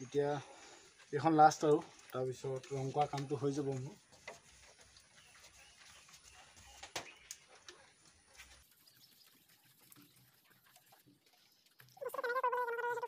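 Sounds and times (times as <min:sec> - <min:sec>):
paintbrush strokes on wood: 0:01.0 - 0:06.9.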